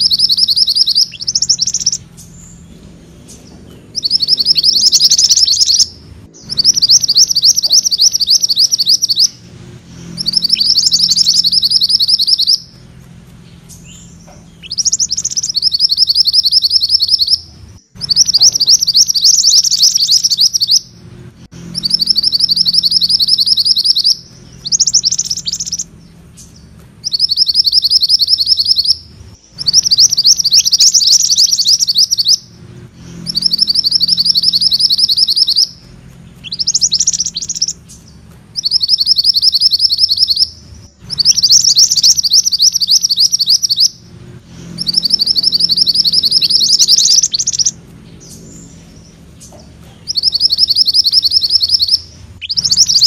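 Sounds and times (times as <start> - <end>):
songbird rolling trill: 0.0 - 53.0
short bird chirps: 3.3 - 12.8, 33.0 - 53.0.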